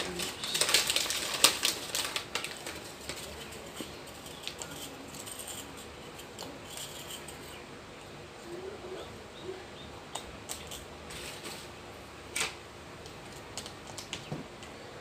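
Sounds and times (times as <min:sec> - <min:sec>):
crackers tapping in foil tray: 0:00.0 - 0:07.2.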